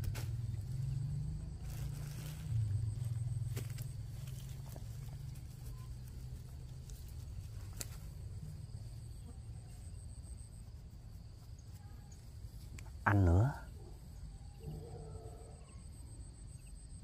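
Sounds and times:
steady low rumble: 0.0s - 11.6s.

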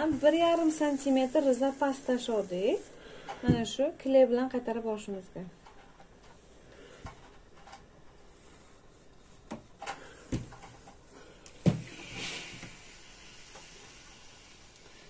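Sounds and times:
iron moving over fabric: 0.0s - 2.8s
steam iron hiss: 0.0s - 3.1s, 11.6s - 15.0s.

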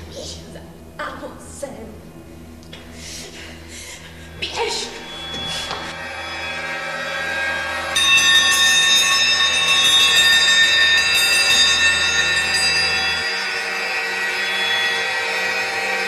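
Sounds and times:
low hum: 0.0s - 16.0s
bell-like ringing tones: 4.3s - 16.0s.

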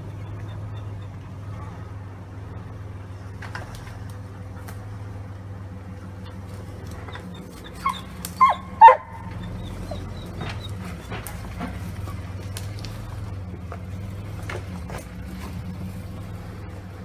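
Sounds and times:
car engine running low: 0.0s - 17.0s
dog barking: 7.0s - 10.7s.

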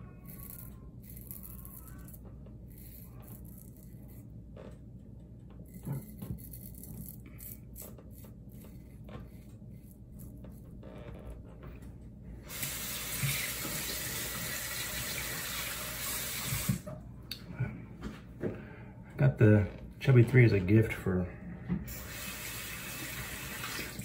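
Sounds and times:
razor scraping stubble: 0.0s - 4.8s, 5.4s - 11.4s
tap water running into basin: 12.5s - 16.9s, 21.9s - 24.0s.

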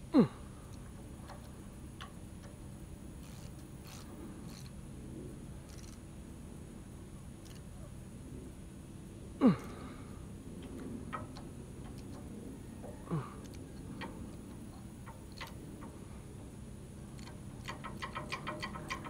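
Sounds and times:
ratchet wrench clicking: 3.2s - 4.7s, 5.7s - 6.0s, 7.4s - 7.6s, 13.4s - 16.0s, 17.2s - 19.0s.

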